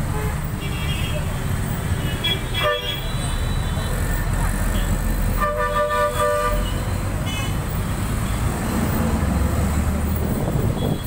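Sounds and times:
vehicle horn: 0:02.1 - 0:03.2, 0:04.8 - 0:07.6
bus engine running: 0:03.5 - 0:11.0.

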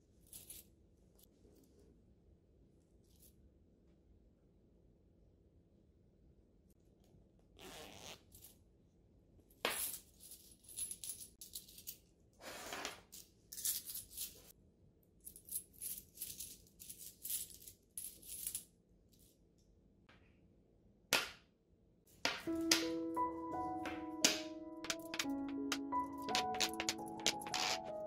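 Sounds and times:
coins jingling and clinking: 0:09.8 - 0:12.0, 0:13.5 - 0:14.5, 0:15.3 - 0:18.7, 0:26.1 - 0:28.0.

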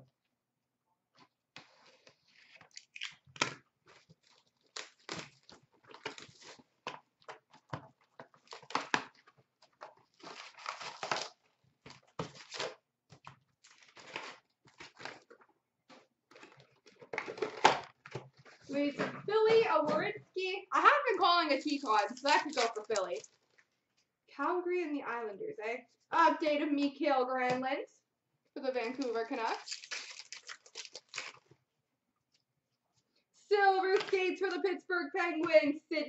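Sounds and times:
cardboard and cards rustling: 0:01.2 - 0:20.2, 0:21.6 - 0:23.7, 0:28.8 - 0:31.6, 0:33.8 - 0:34.6
wrapper crinkling and tearing: 0:02.3 - 0:06.7, 0:08.4 - 0:12.8, 0:13.6 - 0:18.7, 0:21.7 - 0:23.7, 0:28.9 - 0:31.6.

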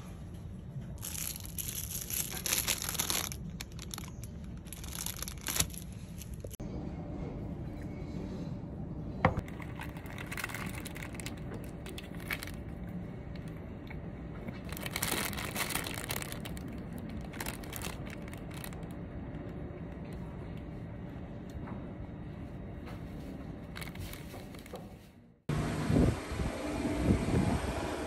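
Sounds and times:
crinkling and rustling handling: 0:00.7 - 0:06.6, 0:09.4 - 0:13.6, 0:14.4 - 0:20.6, 0:22.4 - 0:25.2.

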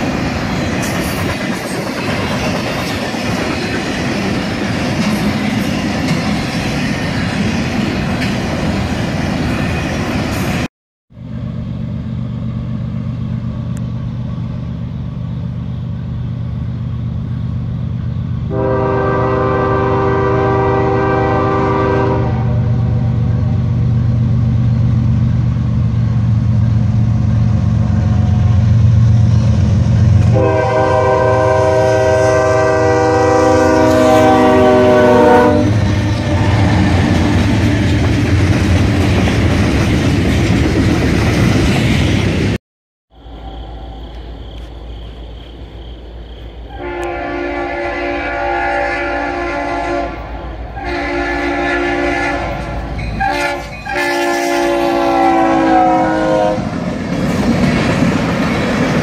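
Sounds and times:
freight train wheels clacking: 0:00.0 - 0:10.7, 0:35.6 - 0:42.6, 0:50.2 - 0:59.0
approaching freight train rumble: 0:00.0 - 0:59.0
locomotive air horn blasts: 0:18.5 - 0:23.5, 0:30.2 - 0:37.4, 0:46.7 - 0:56.7.

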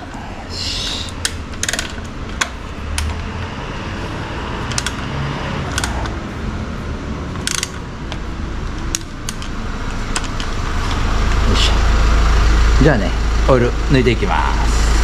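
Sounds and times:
low hum: 0:00.0 - 0:15.0
socket wrench clicking on metal: 0:04.7 - 0:05.0, 0:05.7 - 0:06.2, 0:07.4 - 0:08.2.

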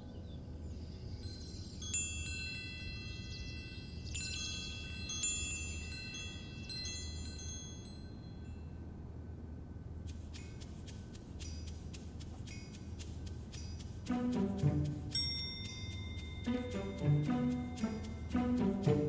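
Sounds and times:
metal chimes ringing: 0:00.9 - 0:08.9, 0:10.4 - 0:19.0
low steady hum: 0:05.5 - 0:19.0.

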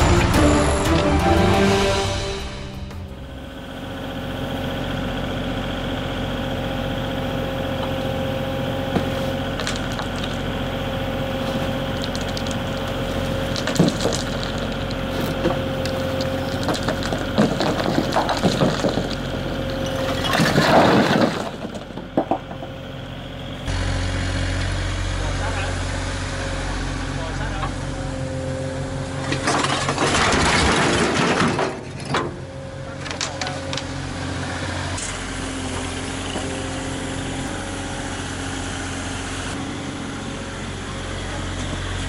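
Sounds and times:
diesel engine running: 0:00.0 - 0:42.0
concrete blocks knocking and scraping: 0:08.9 - 0:10.5, 0:11.3 - 0:22.8
clatter of blocks: 0:09.5 - 0:10.4, 0:11.6 - 0:22.7.

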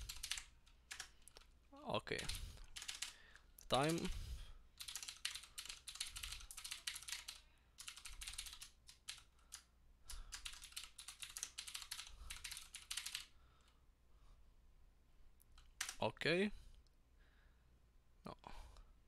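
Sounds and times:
keyboard typing: 0:00.0 - 0:01.5, 0:02.2 - 0:04.2, 0:04.8 - 0:13.3, 0:15.5 - 0:16.0.

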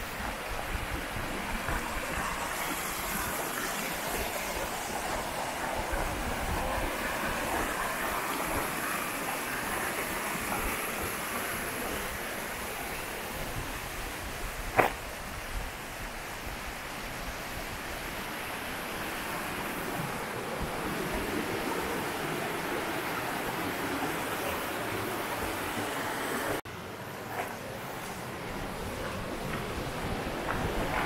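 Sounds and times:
stream rushing over rocks: 0:00.0 - 0:26.9
sharp knock: 0:14.7 - 0:15.0.

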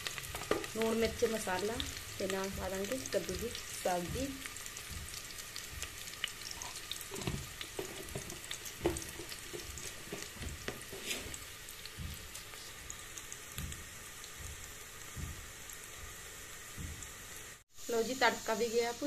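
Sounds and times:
onion frying in hot oil: 0:00.0 - 0:19.0
wooden spoon scraping: 0:06.5 - 0:12.7.

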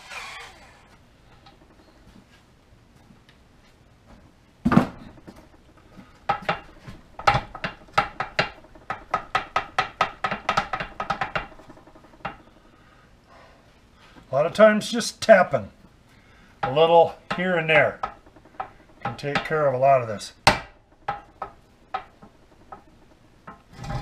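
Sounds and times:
sharp metal clicks: 0:16.6 - 0:24.0.

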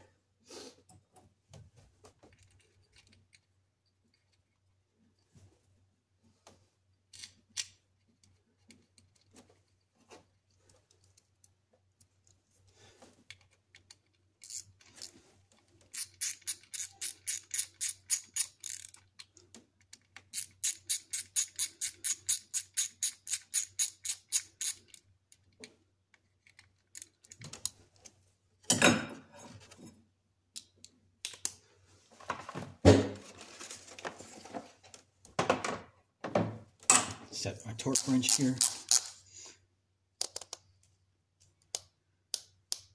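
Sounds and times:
hand ratchet clicking: 0:14.4 - 0:14.7, 0:15.9 - 0:19.0, 0:20.3 - 0:25.0, 0:37.9 - 0:39.2
tools knocking and clattering: 0:35.3 - 0:37.3.

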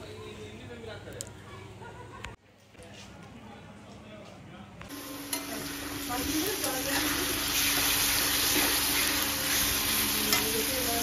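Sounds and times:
onions sizzling in oil: 0:04.9 - 0:11.0.

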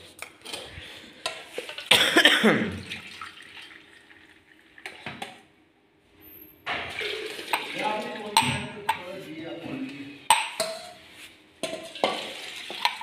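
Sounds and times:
juice pouring into metal bowl: 0:02.8 - 0:05.1, 0:06.9 - 0:08.4, 0:11.9 - 0:13.0.

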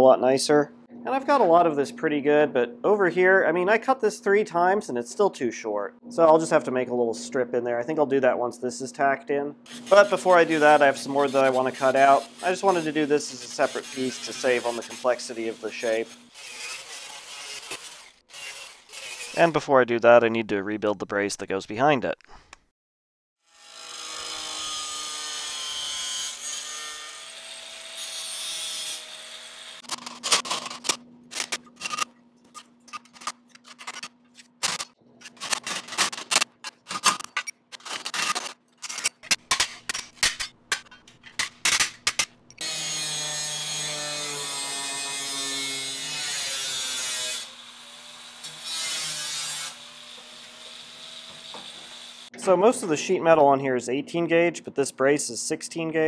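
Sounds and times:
power tool running: 0:09.7 - 0:19.4
angle grinder cutting steel: 0:09.7 - 0:19.5, 0:23.5 - 0:29.9, 0:42.6 - 0:52.3.

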